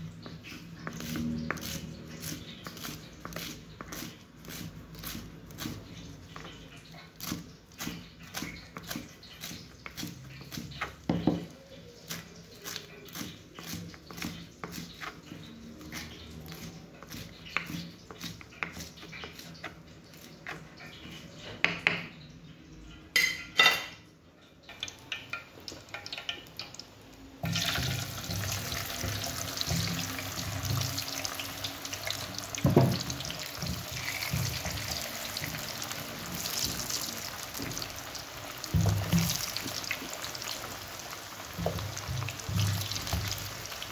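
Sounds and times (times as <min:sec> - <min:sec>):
potatoes frying in hot oil: 0:00.0 - 0:21.4, 0:24.6 - 0:43.9
knife chopping on wooden board: 0:32.6 - 0:35.7.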